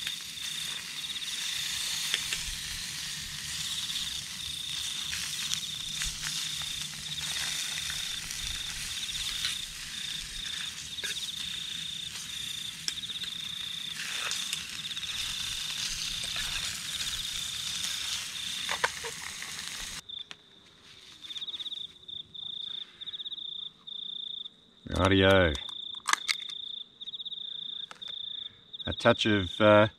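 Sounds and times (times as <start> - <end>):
steady hiss: 0.0 - 20.0
crickets chirping: 0.0 - 29.9.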